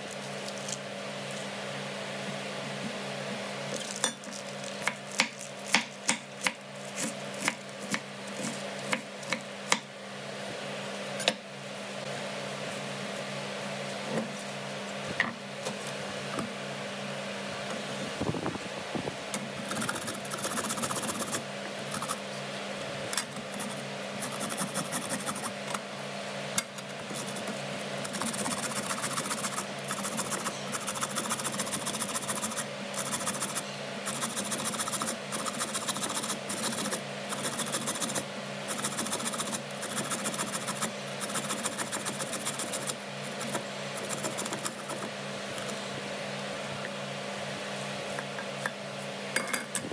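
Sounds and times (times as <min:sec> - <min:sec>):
carrot rasping on a grater: 0:19.6 - 0:22.2, 0:23.6 - 0:25.5, 0:27.1 - 0:45.1.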